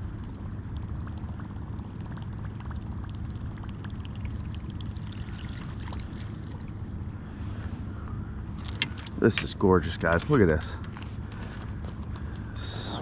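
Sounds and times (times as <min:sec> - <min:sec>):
water splashing and dripping: 0:00.0 - 0:06.8
steady low rumble: 0:00.0 - 0:13.0.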